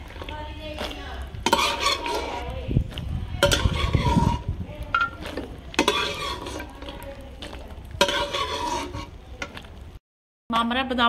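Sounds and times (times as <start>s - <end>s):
stirrer scraping pan: 0.0s - 9.8s
nuts sizzling in oil: 0.0s - 10.0s.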